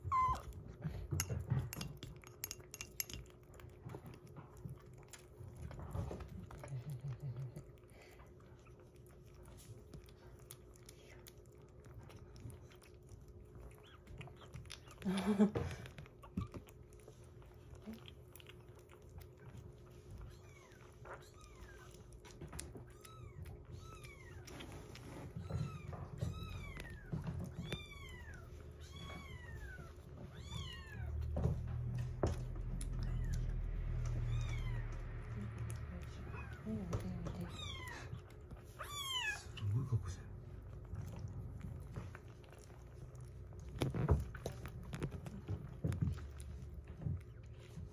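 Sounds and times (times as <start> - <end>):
kitten mewing: 0.0 - 0.6
kitten chewing and lapping: 0.0 - 47.9.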